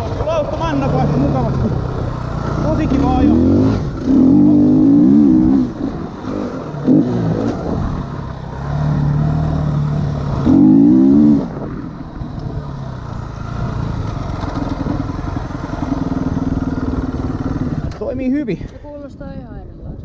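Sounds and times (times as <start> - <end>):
motocross bike engine revving: 0.0 - 18.3.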